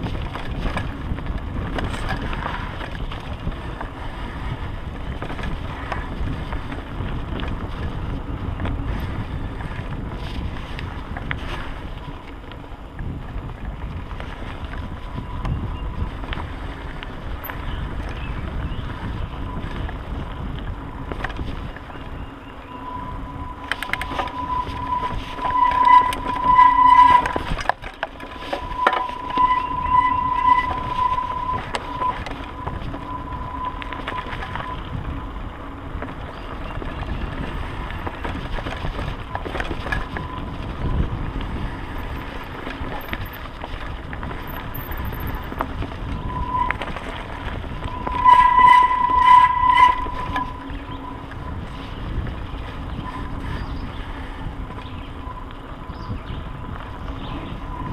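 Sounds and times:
bike knocks and rattles: 0.0 - 15.8, 35.9 - 46.2
tyres rolling on dirt: 0.0 - 57.9
wind rushing over microphone: 0.0 - 57.9
high whine: 21.7 - 57.9.

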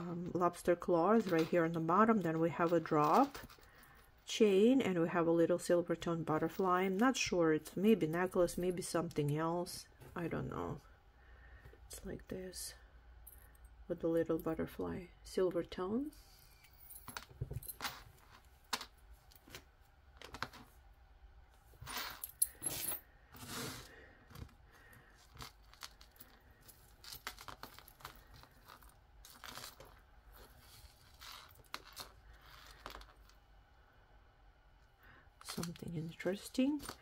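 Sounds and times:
metal chains clinking: 16.3 - 18.1, 21.8 - 23.0.

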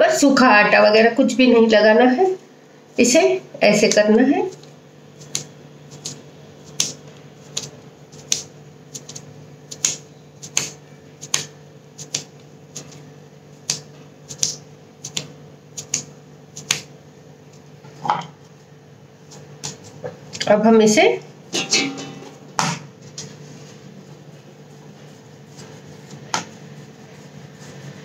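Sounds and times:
hands slapping dough: 3.8 - 17.0, 19.3 - 20.4, 25.0 - 28.0.

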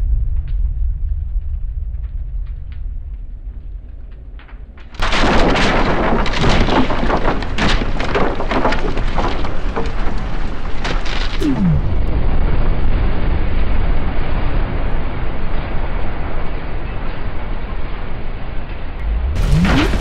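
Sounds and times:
deep rumble: 0.0 - 4.6, 11.2 - 16.4, 18.6 - 20.0
explosion crackle and debris: 0.0 - 20.0
falling tone: 11.4 - 12.6, 19.0 - 20.0.

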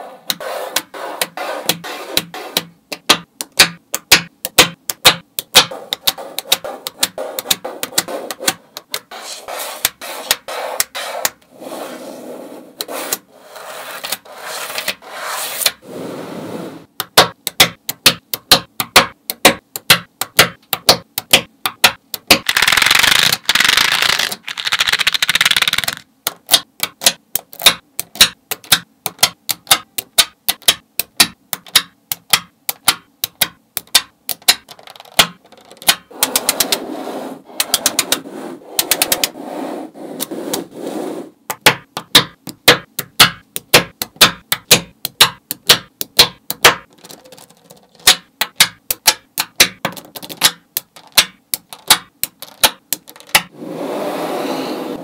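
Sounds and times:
magnetic balls clicking: 0.3 - 9.1, 17.0 - 36.8, 37.6 - 39.4, 41.5 - 53.5
balls rattling across a tabletop: 12.8 - 15.7, 22.3 - 26.0, 34.4 - 40.7, 46.2 - 53.6.

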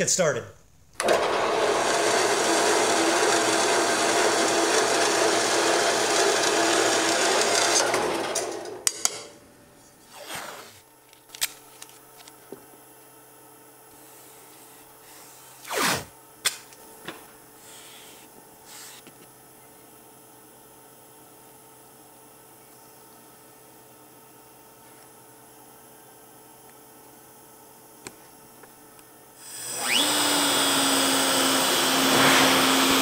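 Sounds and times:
band saw cutting metal: 29.5 - 33.0.

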